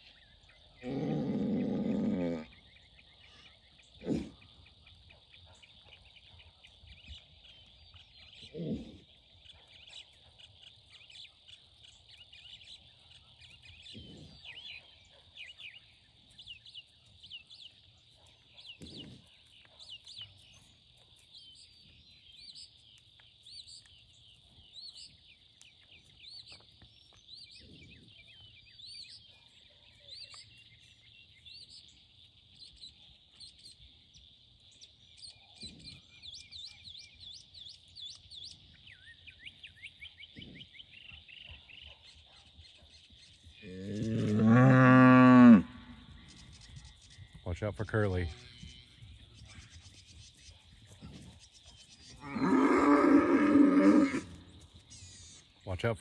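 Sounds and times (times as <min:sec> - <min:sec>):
birds chirping and calling: 0:00.0 - 0:56.0
high insect hum: 0:30.3 - 0:56.0.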